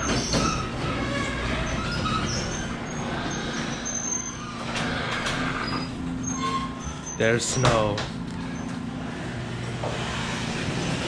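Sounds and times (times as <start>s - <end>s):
door squeaking: 0.0s - 8.7s
garage door opener drone: 0.0s - 11.0s.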